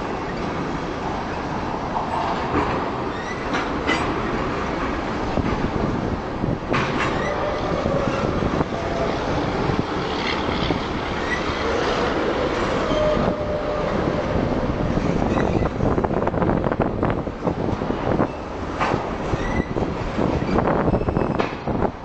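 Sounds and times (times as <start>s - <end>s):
freight train rail rumble: 0.0s - 22.0s
wheels clicking over rail joints: 0.1s - 12.8s
faint wheel squeals: 20.5s - 21.4s.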